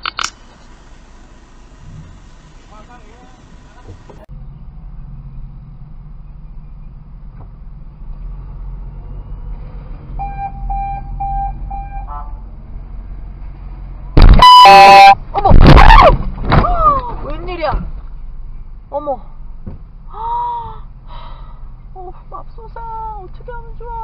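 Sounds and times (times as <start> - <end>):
car engine drone: 0.0 - 16.6
short beeps: 10.2 - 12.1, 14.2 - 15.2
car horn blast: 10.2 - 12.4, 14.2 - 15.2.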